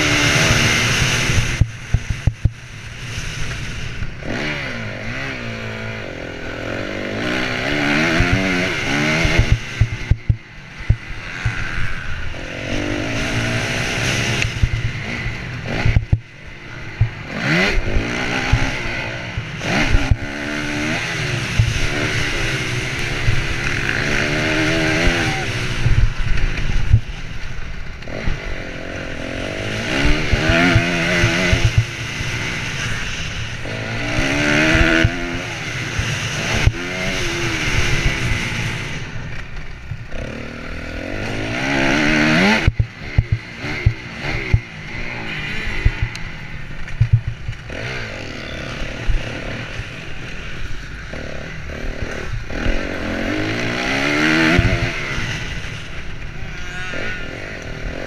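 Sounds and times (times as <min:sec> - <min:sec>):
motorcycle engine revving: 0:00.0 - 0:58.0
noisy rushes: 0:00.0 - 0:58.0.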